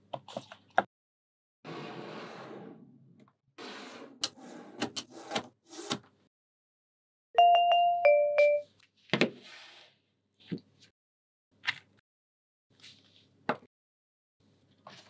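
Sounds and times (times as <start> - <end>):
two-note chime: 7.4 - 8.7.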